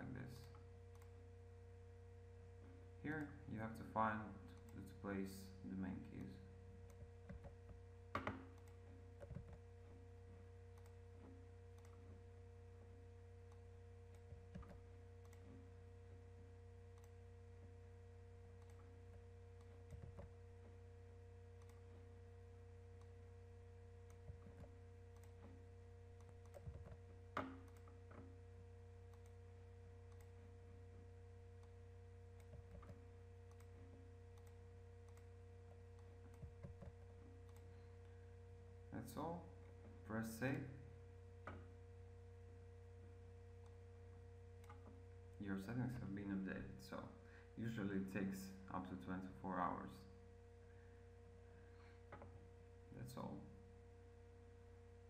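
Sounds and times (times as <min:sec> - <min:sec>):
low hum: 0:00.0 - 0:55.0
mouse and keyboard clicks: 0:06.2 - 0:09.6, 0:10.7 - 0:12.1, 0:21.6 - 0:21.8, 0:26.2 - 0:28.3, 0:32.4 - 0:33.7.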